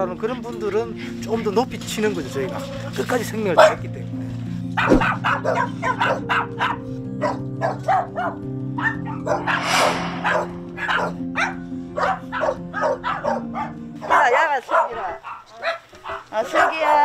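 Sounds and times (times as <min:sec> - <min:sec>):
dogs barking: 0:04.8 - 0:09.5, 0:12.0 - 0:17.0.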